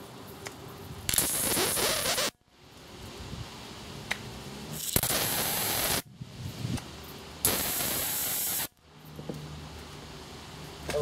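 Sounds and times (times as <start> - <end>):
high-voltage arc discharging: 1.1 - 2.4, 4.7 - 6.1, 7.4 - 8.8.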